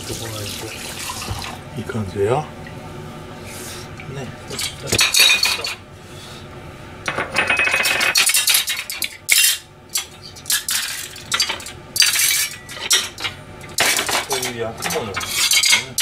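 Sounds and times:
pans and crockery clanking: 4.5 - 5.8, 7.1 - 16.0.

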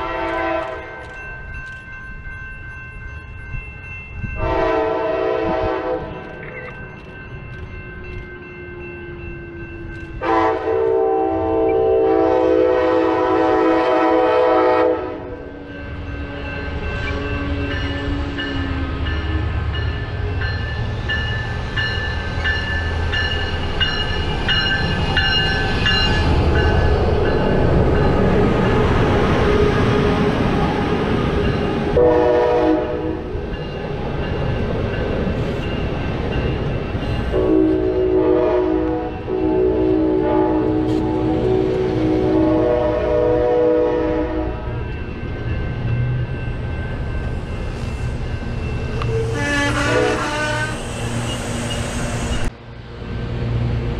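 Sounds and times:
train horn blasts: 0.0 - 1.0, 4.4 - 6.2, 10.2 - 19.6, 32.0 - 33.4, 37.3 - 44.8, 49.0 - 51.0
train rumbling on rails: 0.0 - 53.9.

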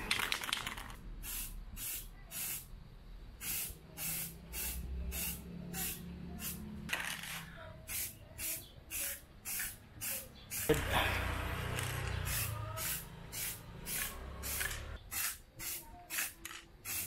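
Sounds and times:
aerosol spray can hissing: 1.2 - 2.6, 3.4 - 6.6, 7.9 - 10.9, 12.1 - 17.0.

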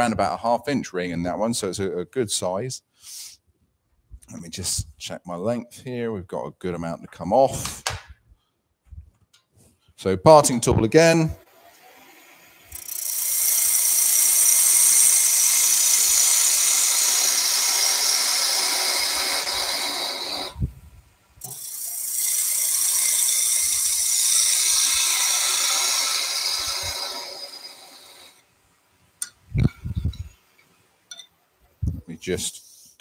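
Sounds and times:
lathe tool scraping wood: 11.7 - 20.6, 21.4 - 28.4.

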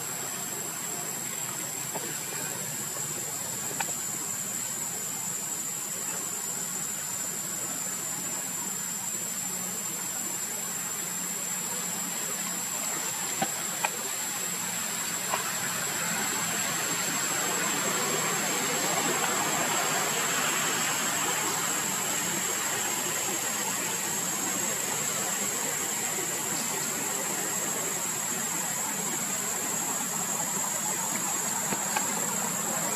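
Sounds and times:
constant high whine: 0.0 - 32.9
outdoor background hiss: 0.0 - 32.9
faint clicks: 3.7 - 4.0, 12.4 - 14.1.

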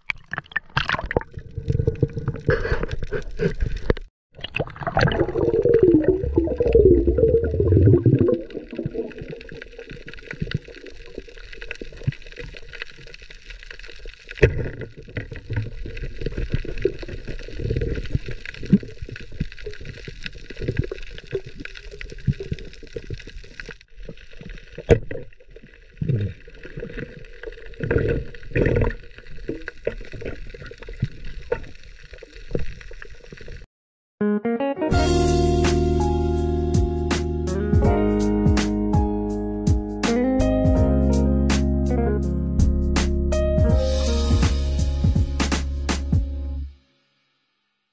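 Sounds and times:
underwater bubbling and gurgling: 0.0 - 33.7.

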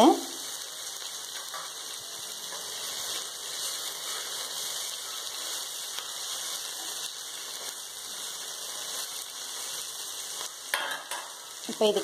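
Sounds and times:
vegetables sizzling in hot oil: 0.0 - 12.0.

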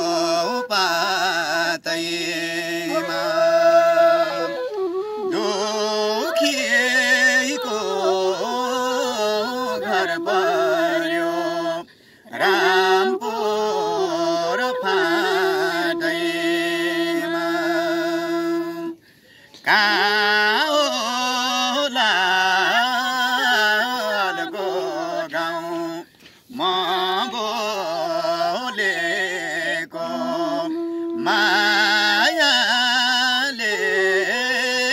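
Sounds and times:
man and woman singing folk song: 0.0 - 34.9.

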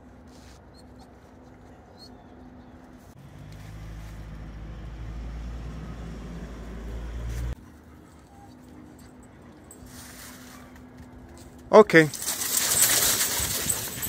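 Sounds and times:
low engine hum: 1.0 - 9.8.

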